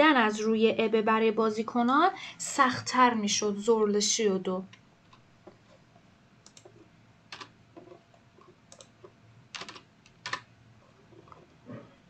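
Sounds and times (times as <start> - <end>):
computer keyboard keystrokes: 6.4 - 8.0, 8.7 - 10.5.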